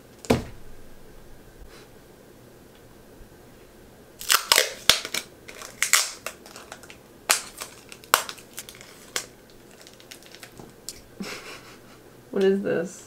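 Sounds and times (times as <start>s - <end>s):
stiff material crackling: 4.2s - 11.0s.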